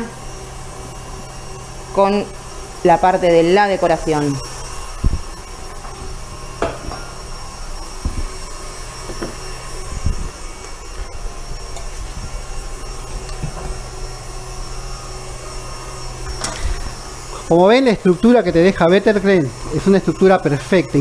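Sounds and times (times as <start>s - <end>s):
electric stand mixer running: 0.0s - 21.0s
utensils knocking and clinking: 5.7s - 7.2s.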